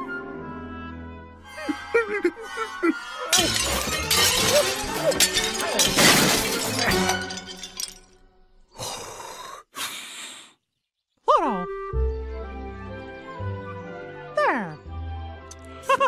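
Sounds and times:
cartoon crashing and clattering: 0:03.3 - 0:08.2.

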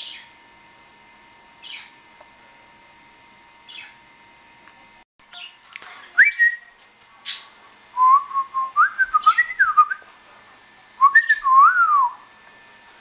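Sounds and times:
budgerigars chirping: 0:00.0 - 0:00.3, 0:01.6 - 0:01.9, 0:03.7 - 0:04.0.

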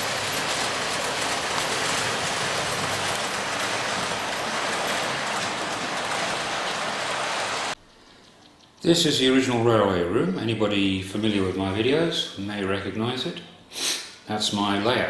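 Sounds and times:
model railway wagons clattering: 0:00.0 - 0:07.8.

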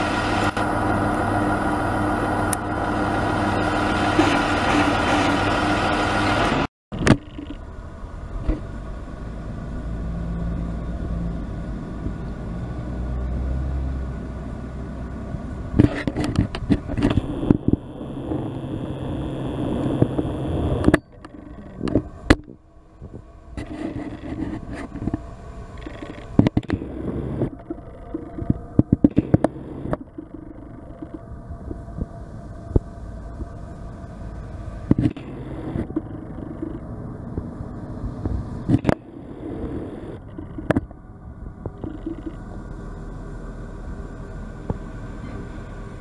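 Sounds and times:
engine idling: 0:14.2 - 0:46.0.

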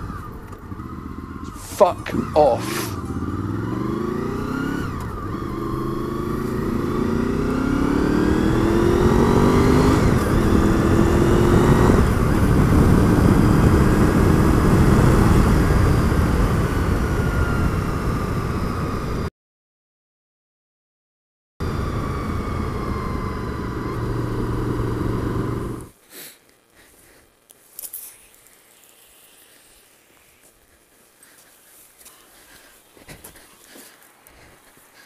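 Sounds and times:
motorcycle engine accelerating hard: 0:00.0 - 0:19.3, 0:21.6 - 0:26.0.

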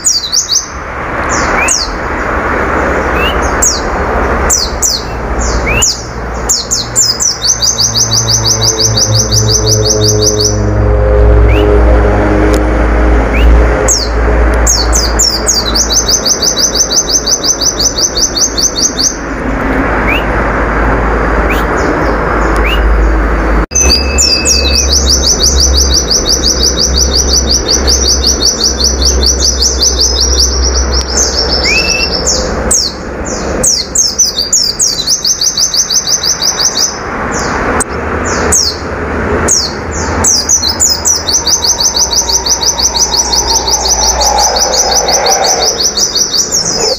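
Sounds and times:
bird singing high trill: 0:03.0 - 0:03.9, 0:04.5 - 0:12.0, 0:13.3 - 0:19.2, 0:20.0 - 0:20.4, 0:23.7 - 0:37.0, 0:39.5 - 0:46.9
low rumble: 0:07.9 - 0:15.7, 0:38.9 - 0:46.9.

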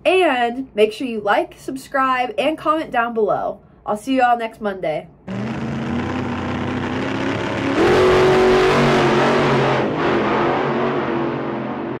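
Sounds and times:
car engine revving: 0:05.3 - 0:12.0.

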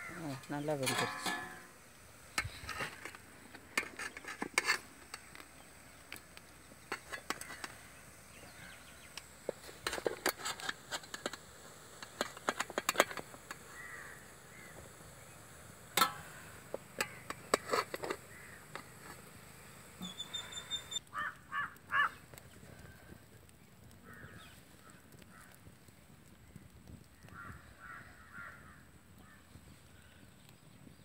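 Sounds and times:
steel ladle clinking on pot: 0:00.8 - 0:01.7.

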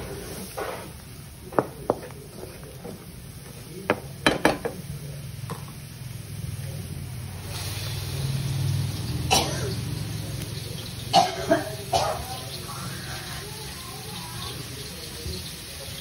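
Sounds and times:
paste sizzling in hot oil: 0:00.0 - 0:16.0
wooden spatula knocking on pan: 0:03.9 - 0:04.8.

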